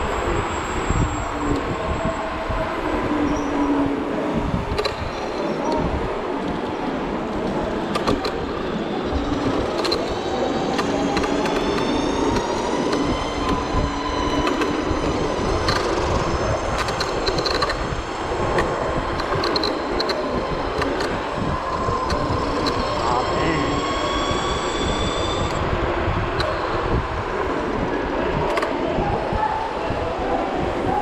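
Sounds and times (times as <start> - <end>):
wind: 0.0 - 31.0
sharp clicks and rattles: 7.4 - 8.4, 9.4 - 13.7, 15.5 - 23.0
electric scooter motor whining: 7.6 - 27.0.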